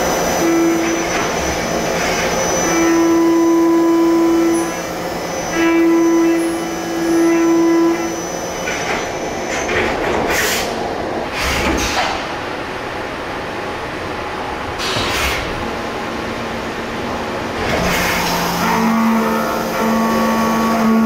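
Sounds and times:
milling machine cutting hum: 0.0s - 9.6s, 17.6s - 21.0s.

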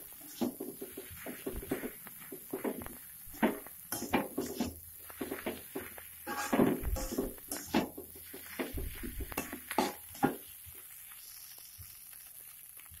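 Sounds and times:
metal spatula scraping a wok: 0.0s - 1.8s, 3.3s - 10.4s.

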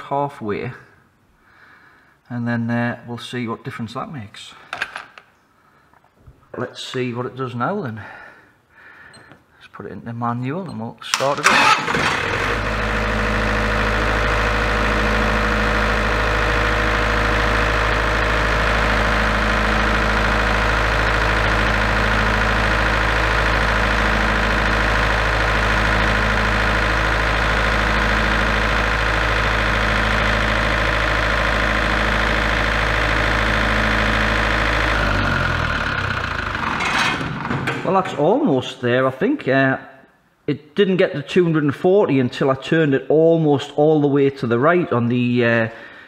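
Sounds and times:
diesel generator running: 11.2s - 38.4s
engine running down to a stop: 11.4s - 37.6s.

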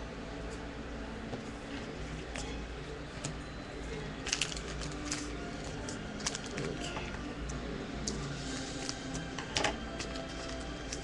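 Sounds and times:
low steady hum: 0.0s - 11.0s
scissors snipping foil: 4.2s - 6.9s
foil wrapper crinkling: 4.2s - 7.0s.

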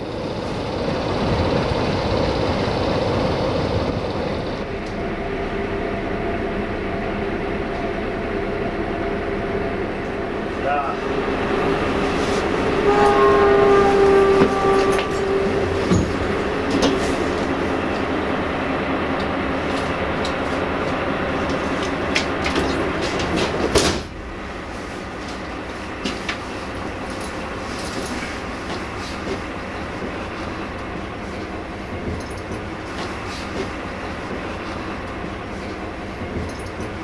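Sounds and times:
train wheels rumbling: 0.0s - 37.0s
train horn: 11.1s - 17.6s.

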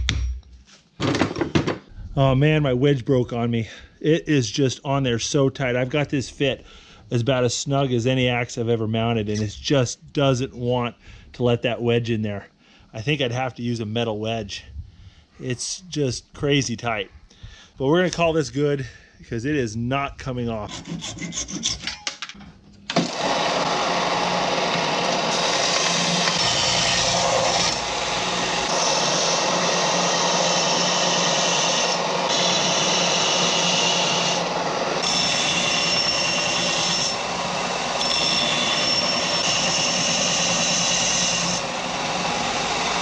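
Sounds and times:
belt sander grinding metal: 22.9s - 43.0s.

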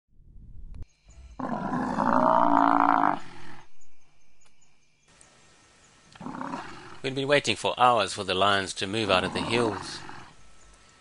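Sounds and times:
buffalo bellowing in distress: 1.4s - 3.7s.

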